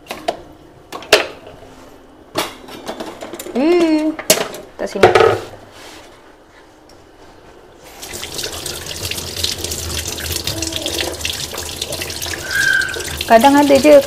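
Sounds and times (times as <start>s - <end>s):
water running into sink: 8.0s - 14.0s.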